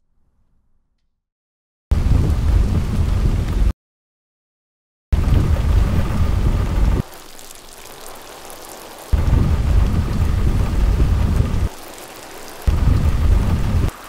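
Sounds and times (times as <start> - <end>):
heavy rain downpour: 1.9 - 3.7, 5.2 - 14.0.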